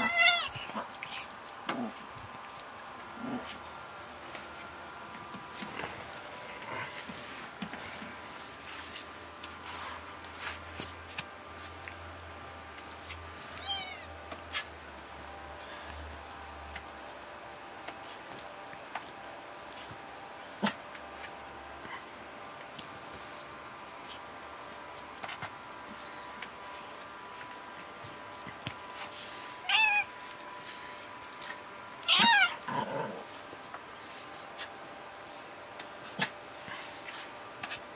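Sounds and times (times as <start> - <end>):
cat meowing: 0.0 - 0.5, 32.1 - 32.6.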